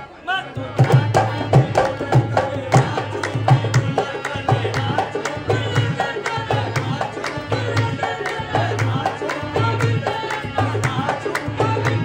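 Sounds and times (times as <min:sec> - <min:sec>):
harmonium: 0:00.0 - 0:12.0
man singing: 0:00.2 - 0:12.0.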